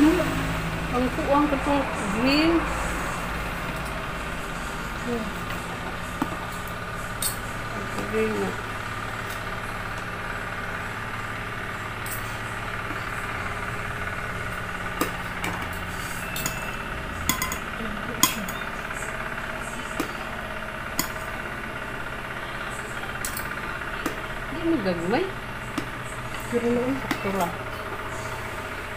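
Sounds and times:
steady machine hum: 0.0s - 28.9s.

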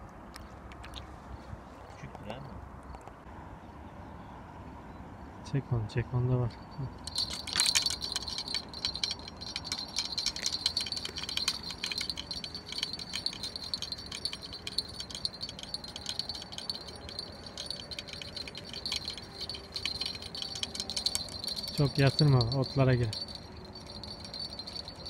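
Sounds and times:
bite bell jingling: 6.7s - 25.0s.

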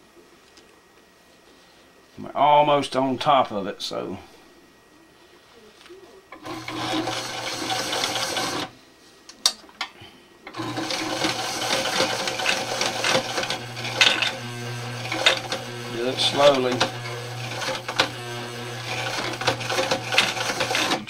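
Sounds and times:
sewing machine running: 6.4s - 8.7s, 10.5s - 21.0s.

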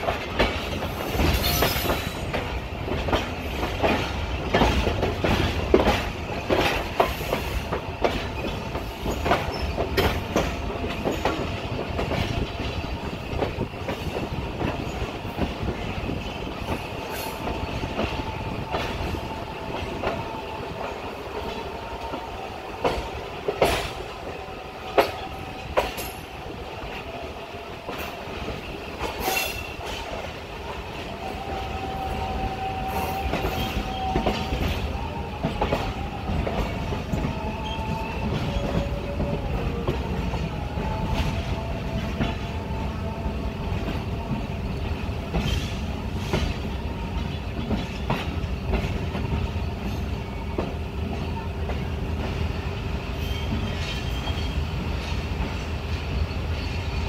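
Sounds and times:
wheels clacking over rail joints: 0.0s - 27.2s, 43.7s - 52.6s
train rolling rumble: 0.0s - 57.0s.

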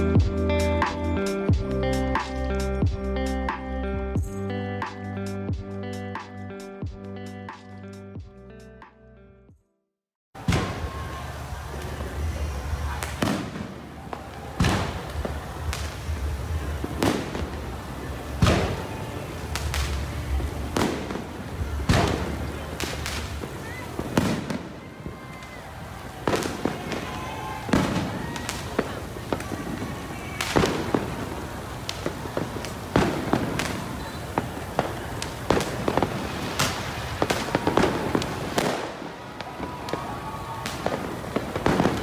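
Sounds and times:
fireworks bangs and cracks: 10.4s - 42.0s.

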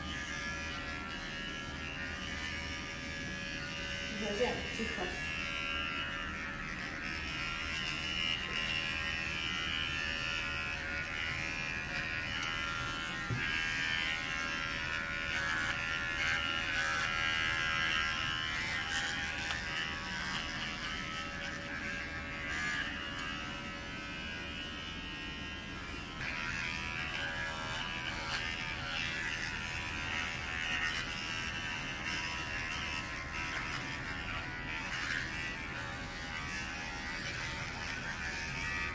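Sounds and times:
electric pet clippers buzzing: 0.0s - 38.9s.

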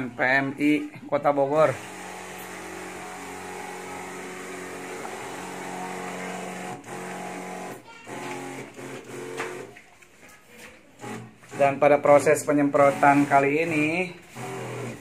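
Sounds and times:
sprayer motor humming: 1.7s - 9.8s, 12.7s - 15.0s.

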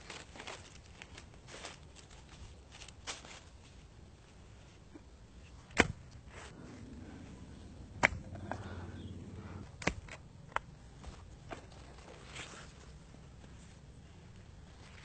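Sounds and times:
low rumble: 6.4s - 12.2s
sharp knocks and snaps: 8.0s - 8.6s, 9.7s - 10.7s.

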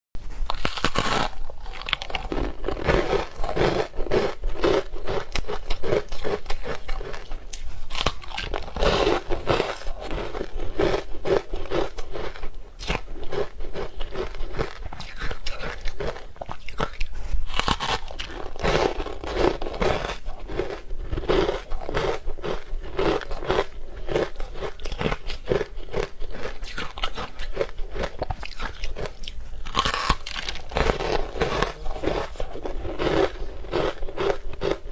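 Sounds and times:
ice being chewed with crunches: 0.3s - 34.9s.

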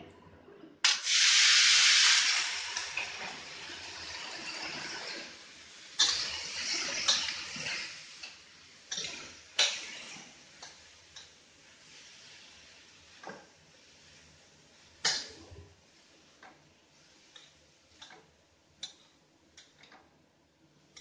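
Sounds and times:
vegetables sizzling in hot oil: 0.9s - 15.3s
spatula stirring in a wok: 3.2s - 18.2s.

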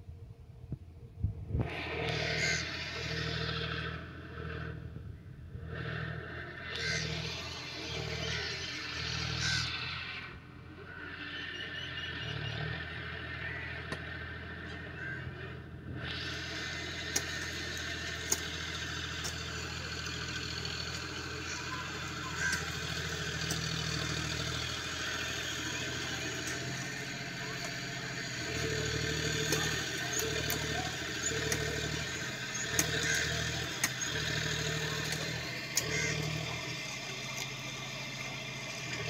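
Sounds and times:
engine humming: 0.0s - 39.0s
clicks: 28.6s - 36.5s.

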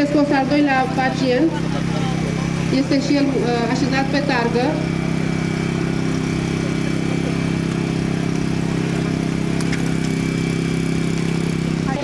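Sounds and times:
vehicle engine idling: 0.0s - 12.0s.

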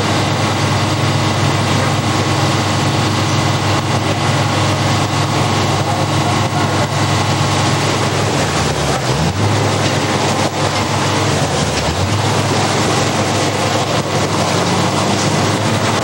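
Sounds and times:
fire engines running: 0.0s - 16.0s.

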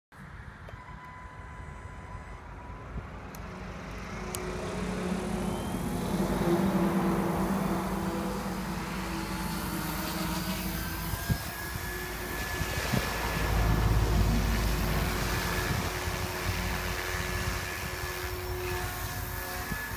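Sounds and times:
rc helicopter motor whine: 0.4s - 19.9s.

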